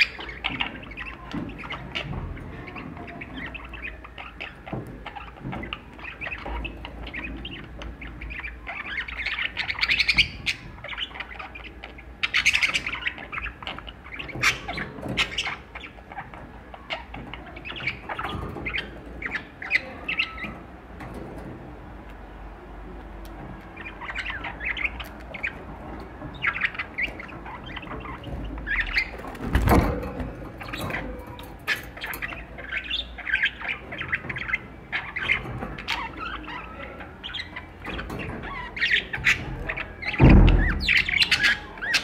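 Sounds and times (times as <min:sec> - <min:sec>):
budgerigars chirping: 0:00.0 - 0:21.0, 0:23.0 - 0:42.0.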